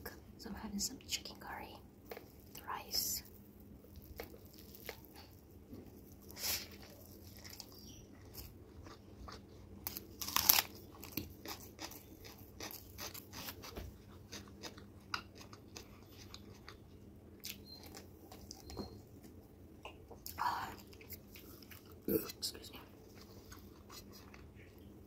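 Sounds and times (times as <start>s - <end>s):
crisp papad crunching and chewing: 3.3s - 18.8s, 23.1s - 24.8s.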